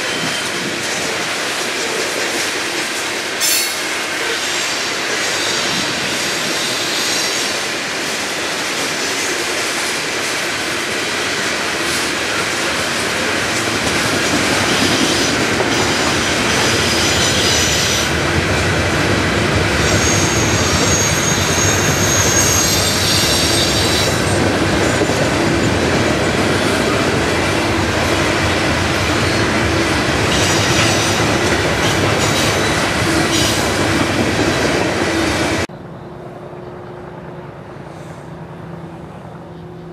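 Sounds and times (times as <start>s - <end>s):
train wheels rumbling on rail: 0.0s - 39.9s
high-pitched wheel squeal: 19.8s - 24.3s.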